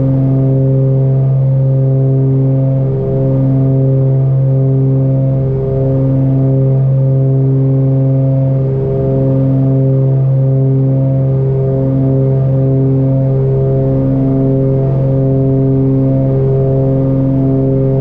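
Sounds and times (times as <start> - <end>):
aircraft engines droning in flight: 0.0 - 18.0.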